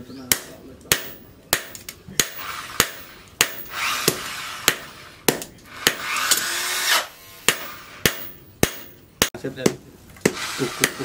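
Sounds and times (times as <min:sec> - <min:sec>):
hammer blows on anvil: 0:00.3 - 0:06.1.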